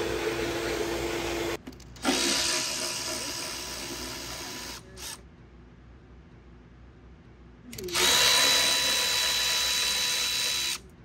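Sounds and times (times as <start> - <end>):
power tool running: 7.8 - 10.8.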